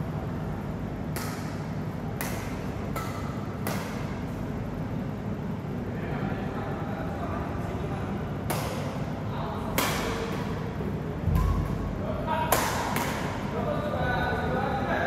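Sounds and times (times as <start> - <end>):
steady background hum: 0.0 - 15.0
rackets hitting shuttlecock: 1.0 - 4.5, 8.4 - 13.6.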